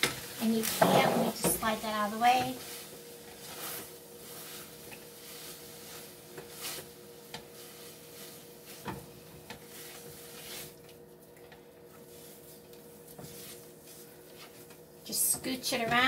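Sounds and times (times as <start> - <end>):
wooden spoon scraping a pan: 0.4 - 10.8, 12.0 - 14.8.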